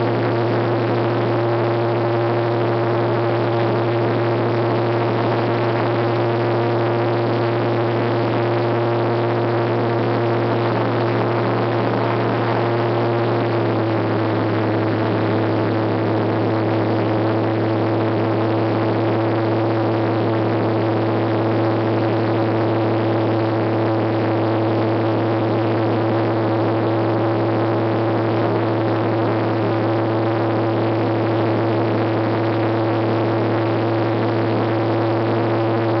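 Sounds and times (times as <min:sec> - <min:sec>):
aircraft engine and propeller: 0:00.0 - 0:17.8.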